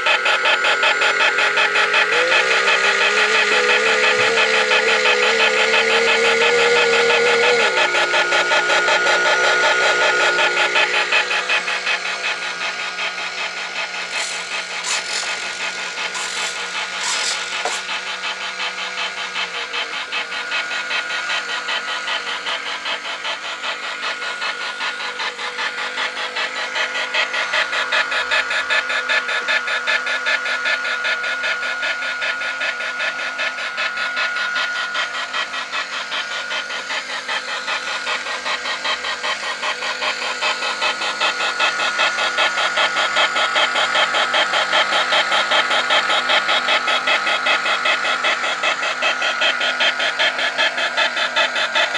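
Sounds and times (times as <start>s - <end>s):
model steam engine beating: 0.0s - 51.9s
steam hisses: 13.6s - 18.1s.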